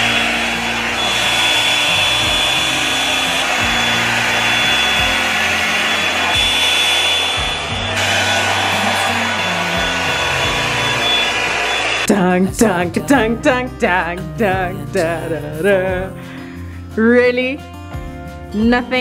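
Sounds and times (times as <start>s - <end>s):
hair dryer motor whine: 0.0s - 12.1s.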